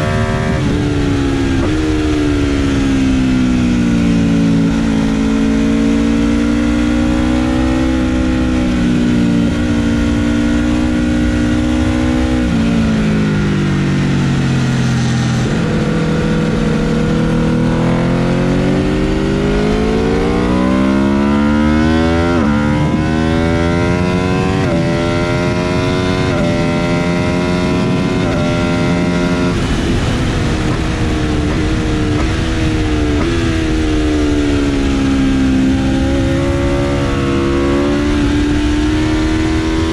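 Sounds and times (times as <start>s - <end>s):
motorcycle engine at speed: 0.0s - 39.9s
wind rushing: 8.2s - 39.9s.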